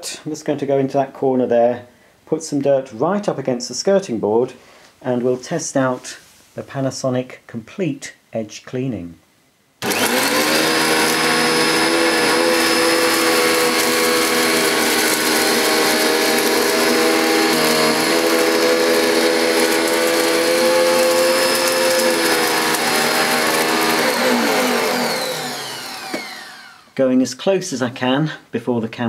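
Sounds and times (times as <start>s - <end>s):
vacuum cleaner running on carpet: 9.8s - 27.0s.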